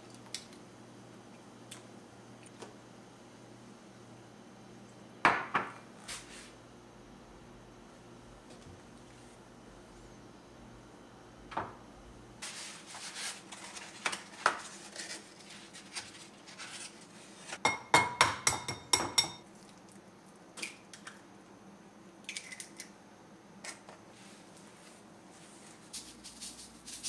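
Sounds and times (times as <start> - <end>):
egg tapping on ringing glass: 17.7 - 19.4
glass bowl clinking: 17.7 - 19.4.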